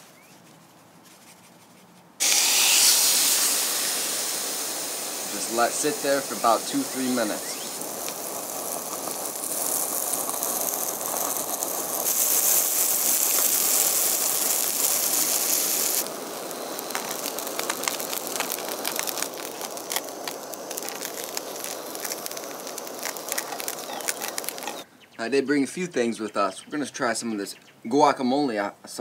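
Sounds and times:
fish sizzling in butter: 2.2s - 24.9s
fat spattering and popping: 5.2s - 24.9s.

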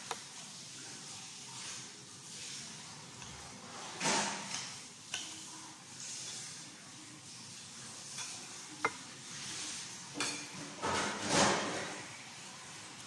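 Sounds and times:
cutlery clinking on plate: 10.2s - 12.0s.

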